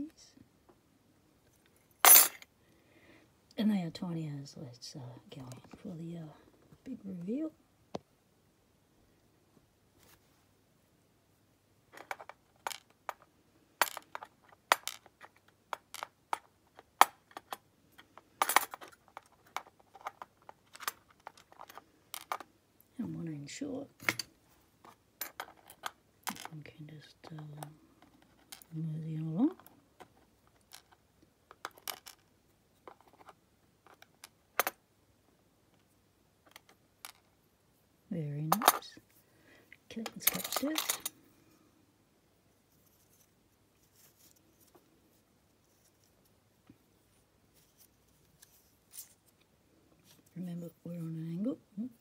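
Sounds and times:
small pins dropping onto plastic tray: 2.0s - 2.5s.

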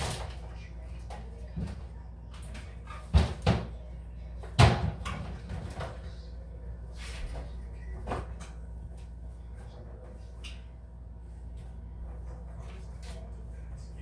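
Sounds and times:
kitchen clatter: 0.0s - 3.8s, 4.4s - 6.2s.

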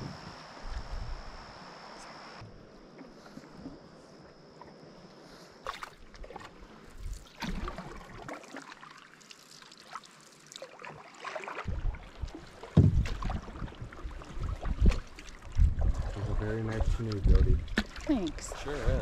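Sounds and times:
canoe paddles dipping in water: 2.5s - 19.0s
water splashes and drips: 5.6s - 19.0s.

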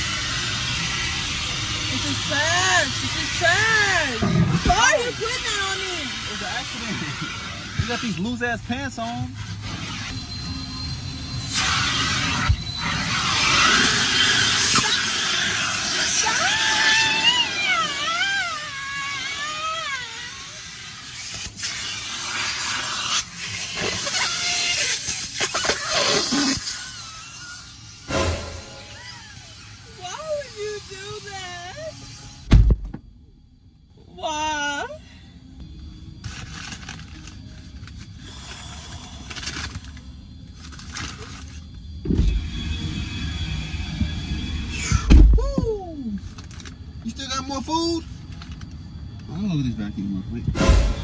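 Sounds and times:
car door opening thump: 32.5s - 33.1s.

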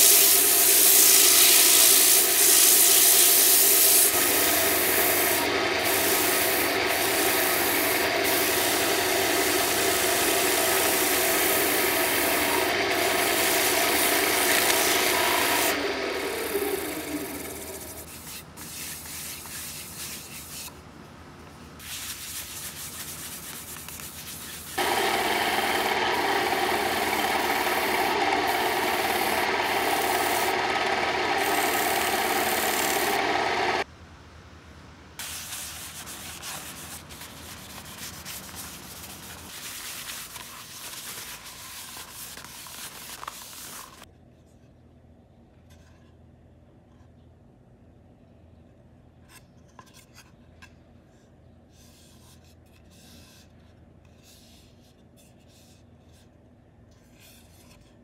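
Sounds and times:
cloth rubbing spinning wood: 0.0s - 18.1s, 24.6s - 33.8s
sanding on spinning wood: 0.0s - 20.6s, 21.9s - 33.8s.

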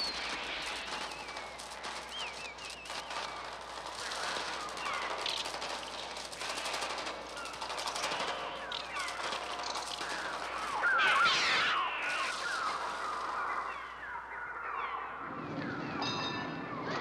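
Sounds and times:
wings fluttering: 0.0s - 14.6s
birds shrieking and calling: 0.0s - 16.2s.

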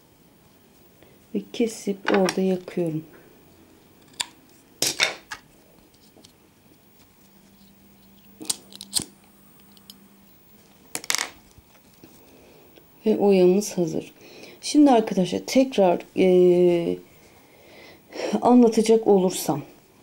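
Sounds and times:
scissors snipping and clicking: 8.4s - 10.0s.

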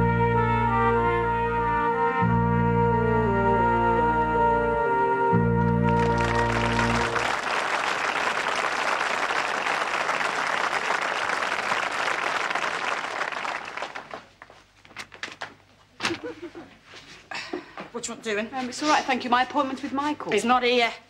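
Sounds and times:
audience applauding: 5.7s - 14.5s.

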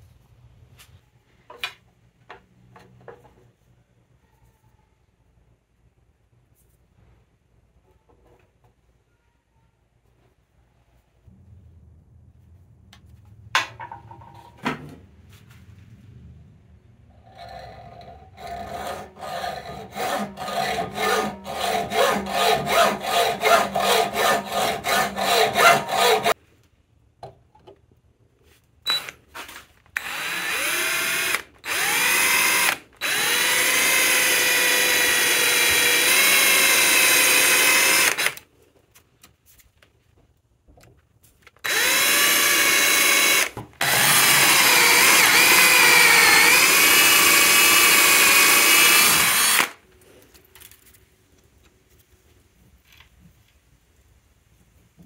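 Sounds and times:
electric drill drilling metal: 18.0s - 26.4s, 30.0s - 38.4s, 41.6s - 49.8s
hand hacksaw strokes: 18.0s - 26.4s.

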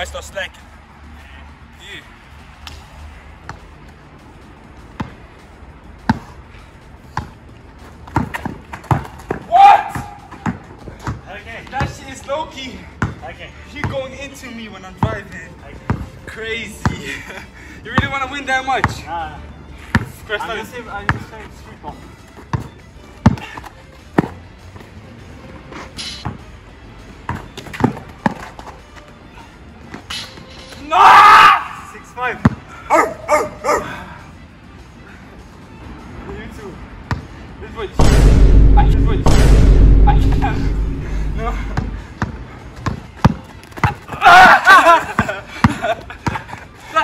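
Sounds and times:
basketball bouncing on a court: 41.7s - 44.0s.

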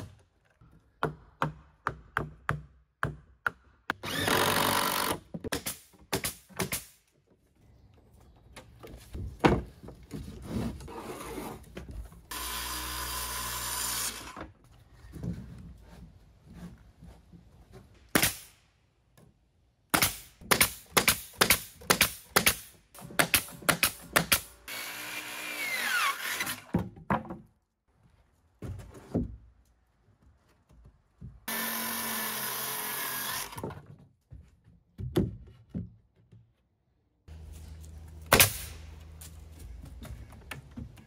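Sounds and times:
power tool running: 12.3s - 14.4s, 31.5s - 33.6s.

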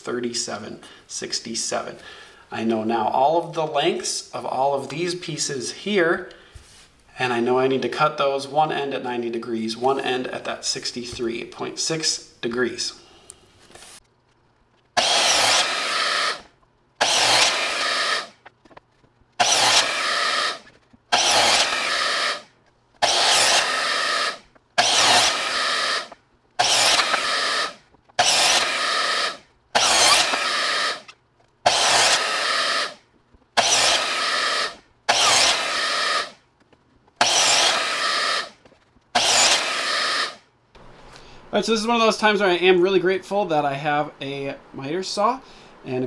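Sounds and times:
miter saw cutting wood: 15.0s - 18.4s, 19.4s - 33.0s, 33.6s - 36.4s, 37.2s - 38.6s, 39.2s - 40.4s.

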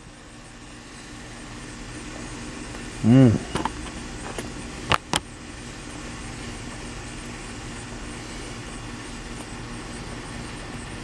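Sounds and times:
low drone with faint hum: 0.0s - 11.0s.

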